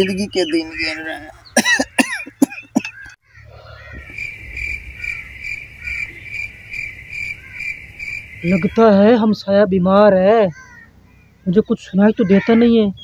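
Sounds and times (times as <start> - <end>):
cricket chirping: 0.0 - 9.2
man coughing: 1.1 - 3.1.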